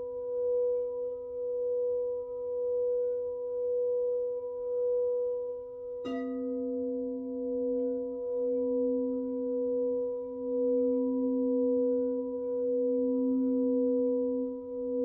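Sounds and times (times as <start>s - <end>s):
singing bowls ringing: 6.0s - 15.0s
bowl struck with mallet: 6.1s - 6.9s.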